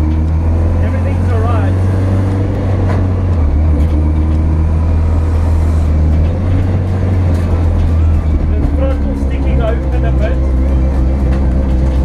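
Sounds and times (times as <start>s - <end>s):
race car engine drone: 0.0s - 12.0s.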